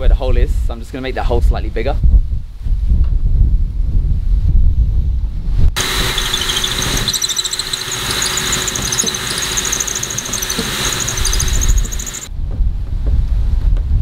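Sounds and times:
cordless drill whining: 0:05.8 - 0:12.3.

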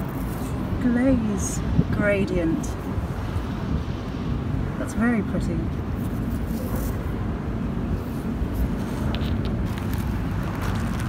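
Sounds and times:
low outdoor rumble: 0:00.0 - 0:11.0
footsteps crunching on shingle: 0:09.6 - 0:11.0.

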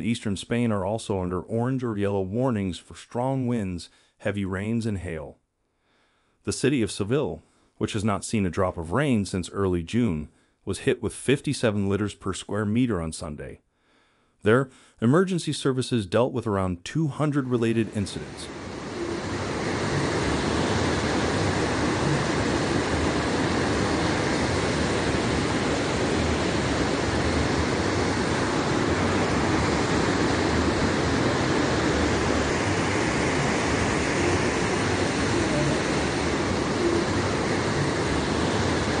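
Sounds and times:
wind: 0:17.2 - 0:39.0
heavy rain: 0:17.9 - 0:39.0.

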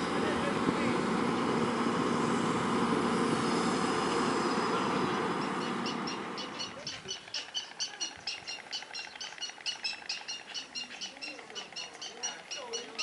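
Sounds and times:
traffic hum: 0:00.0 - 0:13.0
storks clattering bills: 0:04.4 - 0:13.0
murmur of voices: 0:10.4 - 0:13.0.

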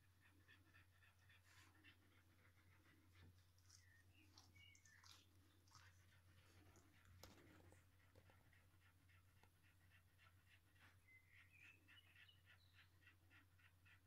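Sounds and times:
puppies suckling: 0:01.4 - 0:09.9.

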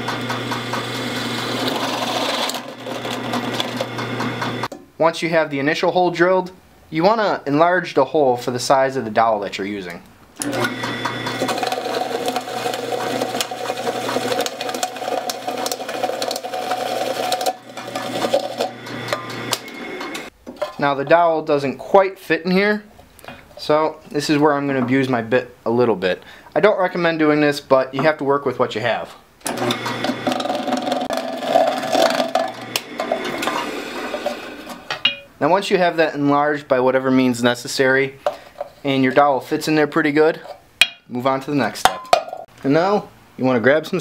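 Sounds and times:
drill press motor hum: 0:00.0 - 0:04.7, 0:10.4 - 0:20.3, 0:29.4 - 0:35.0.

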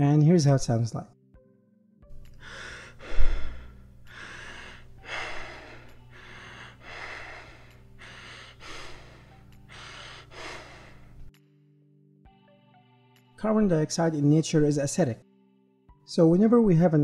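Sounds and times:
deep rapid breathing: 0:02.1 - 0:11.3.

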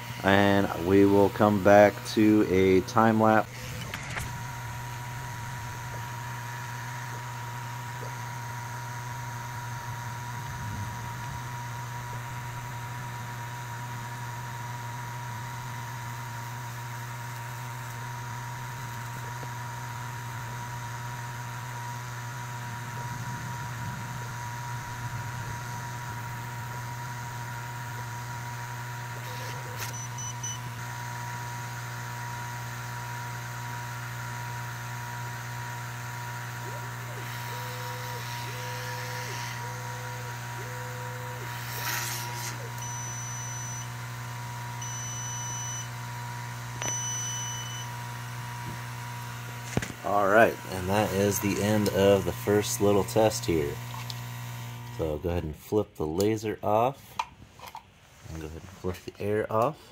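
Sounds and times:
air pump humming: 0:00.0 - 0:55.4
small click: 0:46.8 - 0:47.0.

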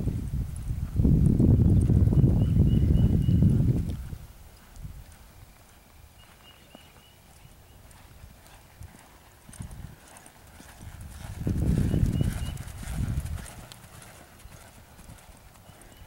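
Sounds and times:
horse hoofbeats on dirt: 0:03.2 - 0:16.0.

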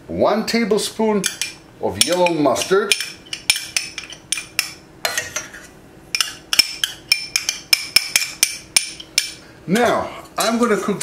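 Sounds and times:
spoon clinking glass bowl: 0:01.3 - 0:05.5.

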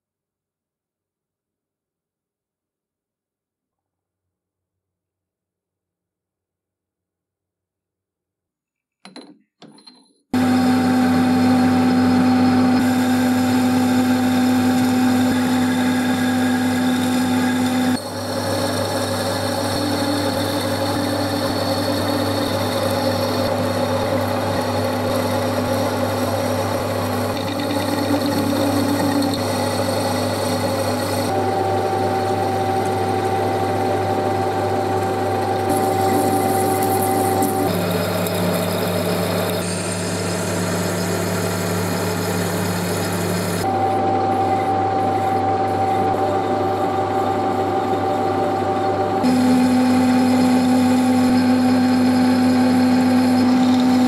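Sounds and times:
lathe motor and gear hum: 0:09.8 - 0:54.0.

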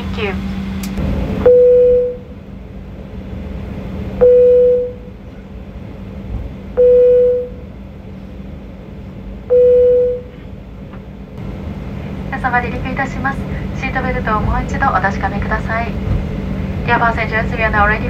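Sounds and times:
steady low hum: 0:00.0 - 0:18.0
electronic beep tone: 0:01.5 - 0:02.3, 0:04.2 - 0:05.0.

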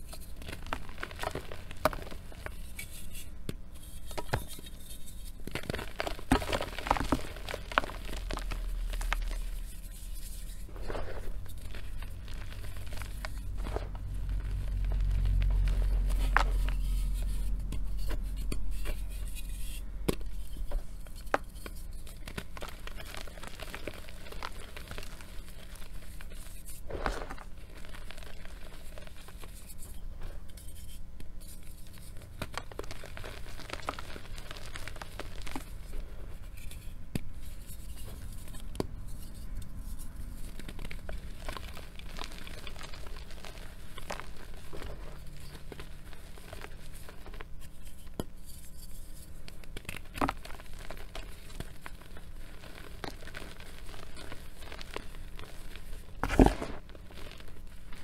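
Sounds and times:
chalk crushed in hands: 0:00.0 - 0:58.0.

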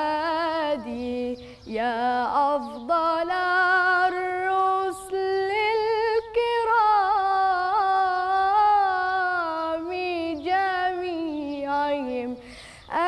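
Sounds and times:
girl singing unaccompanied chant: 0:00.0 - 0:13.0
singer breathing: 0:01.4 - 0:01.7, 0:12.4 - 0:12.9.

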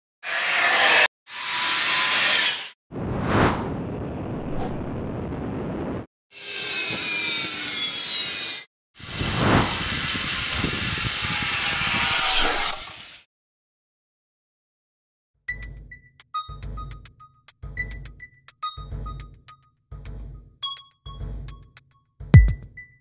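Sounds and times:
rushing wind: 0:03.0 - 0:06.0, 0:09.0 - 0:12.5
zipline trolley whirring on cable: 0:09.0 - 0:13.2.

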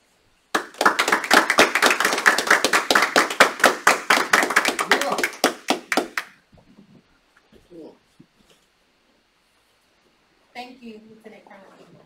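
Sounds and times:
small group applauding: 0:00.5 - 0:06.4.

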